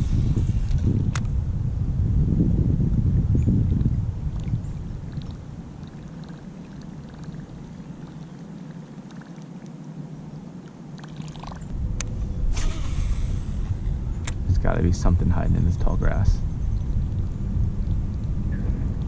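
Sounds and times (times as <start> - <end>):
fishing reel whirring: 0.0 - 1.3, 12.5 - 13.9
water lapping against kayak hull: 3.4 - 11.7.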